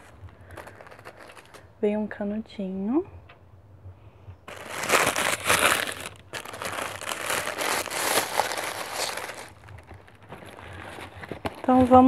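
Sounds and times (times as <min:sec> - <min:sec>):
tissue paper rustling and crinkling: 0:00.0 - 0:01.7, 0:04.5 - 0:12.0.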